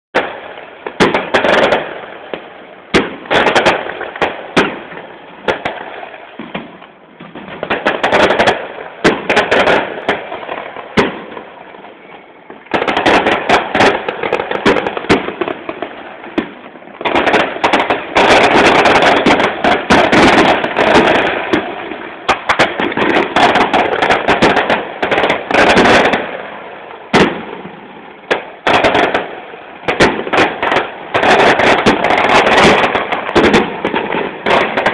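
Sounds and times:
fireworks bangs and crackling: 0:00.1 - 0:34.9.

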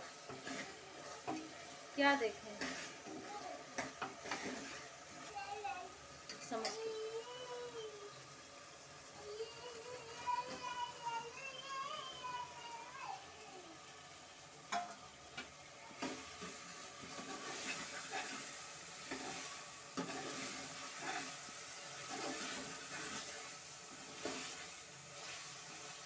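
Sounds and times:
food sizzling: 0:00.0 - 0:26.0
ladle scraping pot: 0:00.1 - 0:01.8, 0:02.5 - 0:05.0, 0:16.0 - 0:25.8.

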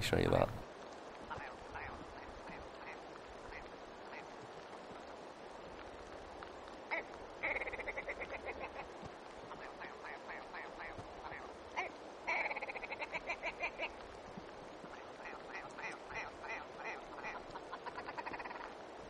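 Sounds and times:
grouse calling: 0:01.2 - 0:04.4, 0:06.9 - 0:14.2, 0:14.8 - 0:18.9
rapid cackling bird notes: 0:01.2 - 0:04.6, 0:06.7 - 0:14.2, 0:14.8 - 0:19.0.

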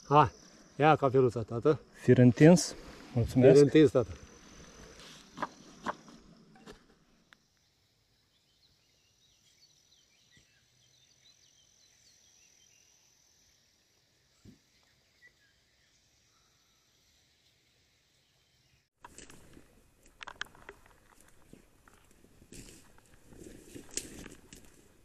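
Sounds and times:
high insect trill: 0:00.0 - 0:25.0
faint bird chirps: 0:07.6 - 0:13.3, 0:14.2 - 0:18.9.

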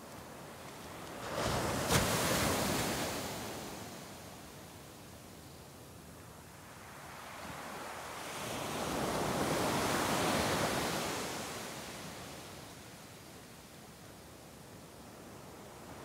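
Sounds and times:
wave breaking on sand: 0:01.2 - 0:03.5.

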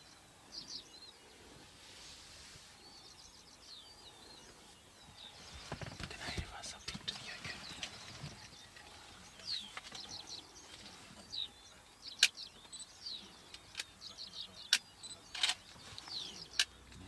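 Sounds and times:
small birds chirping: 0:00.0 - 0:17.0
sharp clicks: 0:12.1 - 0:12.7, 0:14.6 - 0:17.0.

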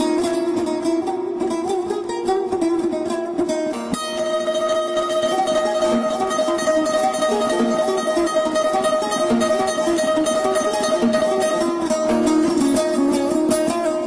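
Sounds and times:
plucked string melody: 0:00.0 - 0:14.0.

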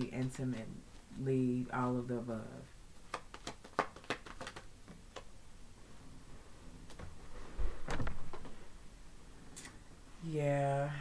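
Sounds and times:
cards clicking: 0:03.1 - 0:05.3
soft thump and rustle: 0:06.9 - 0:08.6.

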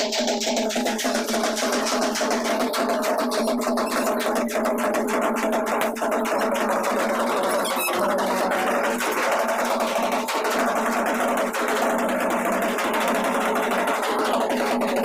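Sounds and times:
fast drum beat: 0:00.0 - 0:15.0
band party music: 0:02.8 - 0:05.0, 0:06.6 - 0:09.8.

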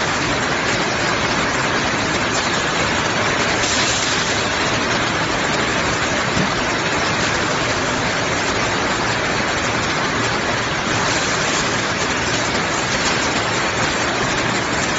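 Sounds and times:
machine rushing hiss: 0:03.5 - 0:04.8.

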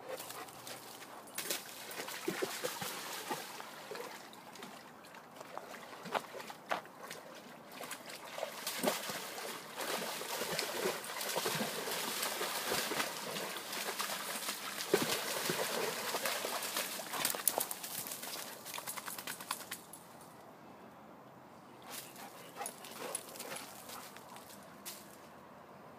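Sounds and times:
dog splashing through water: 0:00.1 - 0:19.7.

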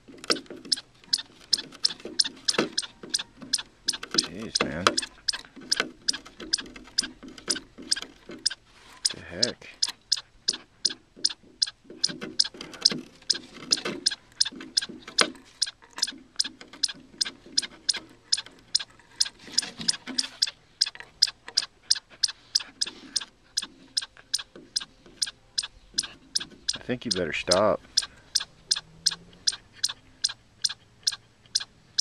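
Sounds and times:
dog gnawing wood: 0:00.0 - 0:09.2, 0:09.8 - 0:23.3.

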